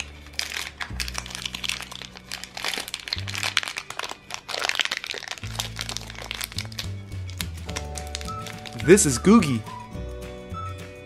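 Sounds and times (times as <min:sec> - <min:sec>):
plastic bag crinkling: 0:00.0 - 0:09.6
background music with bass: 0:05.5 - 0:11.0.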